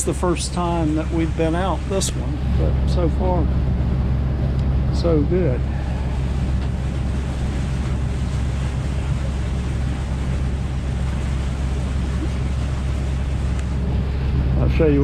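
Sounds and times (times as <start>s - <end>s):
boat engine droning: 0.0s - 15.0s
water noise: 0.0s - 15.0s
wind: 0.0s - 15.0s.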